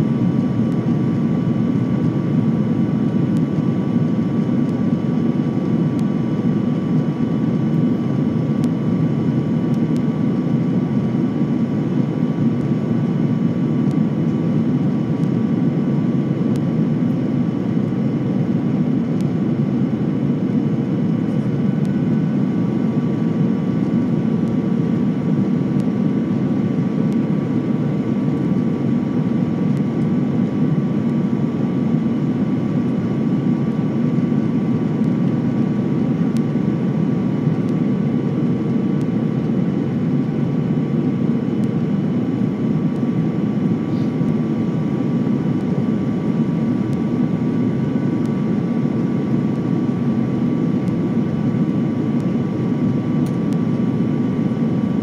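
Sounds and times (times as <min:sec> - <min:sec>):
faint high whine: 0:00.0 - 0:55.0
jet engine rumble: 0:00.0 - 0:55.0.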